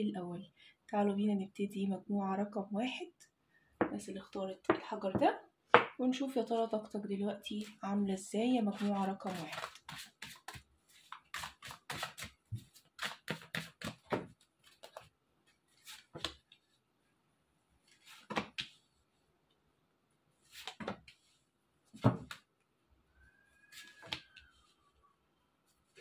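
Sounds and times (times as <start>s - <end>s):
cards being shuffled: 8.8s - 15.1s.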